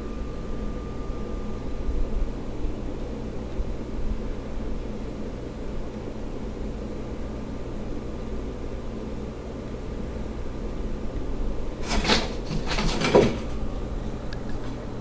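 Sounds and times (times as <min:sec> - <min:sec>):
steady low hum: 0:00.0 - 0:15.0
scraping and knocking in glass tank: 0:11.8 - 0:13.6.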